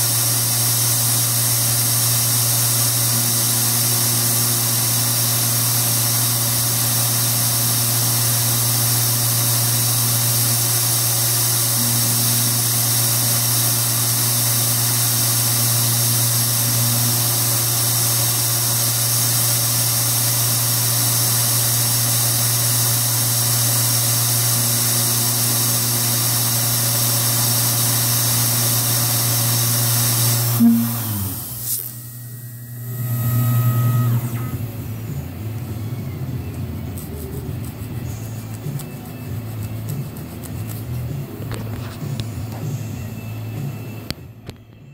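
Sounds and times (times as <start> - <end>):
milling machine spindle hum: 0.0 - 44.6
low hum of machine moving: 30.5 - 40.0.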